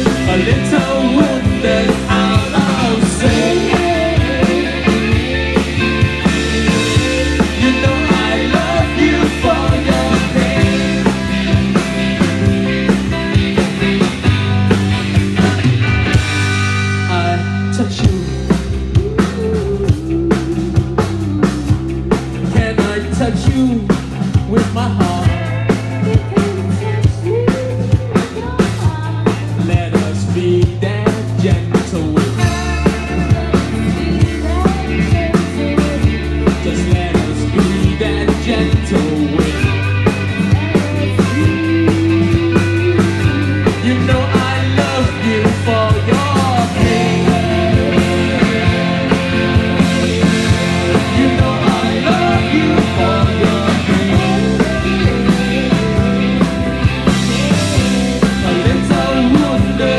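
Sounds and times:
person singing: 0.0 - 12.0, 17.0 - 59.9
bass guitar: 0.0 - 59.9
drum kit beat: 0.0 - 59.9
electric guitars: 0.0 - 59.9
keyboard: 0.0 - 59.9.

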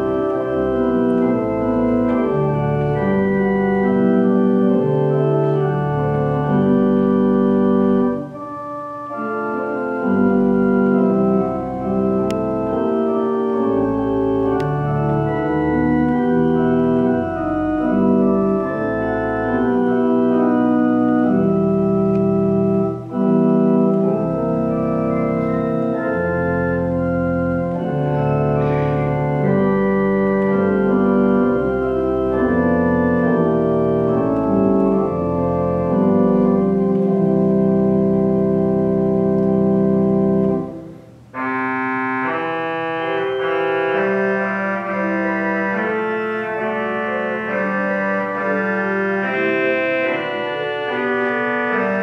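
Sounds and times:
pipe organ playing a hymn: 0.0 - 52.0.

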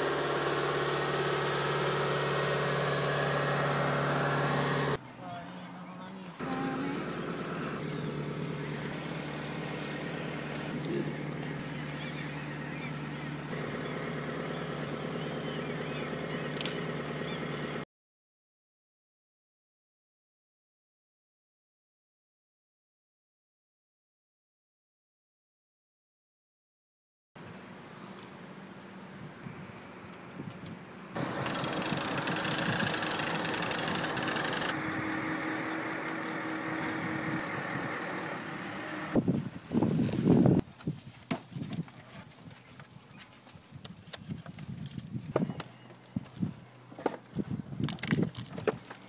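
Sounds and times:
machinery running: 0.0 - 5.4, 6.4 - 17.8, 31.2 - 39.2
engine hum: 0.0 - 17.8, 27.4 - 49.0.

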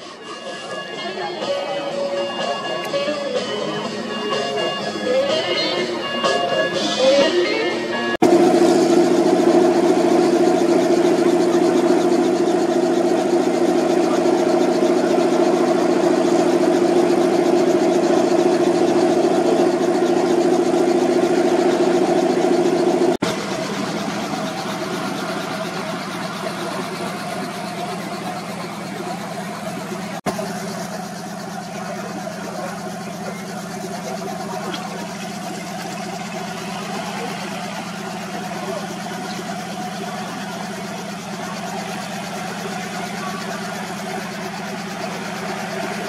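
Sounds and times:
light aircraft piston engine: 0.0 - 46.0.

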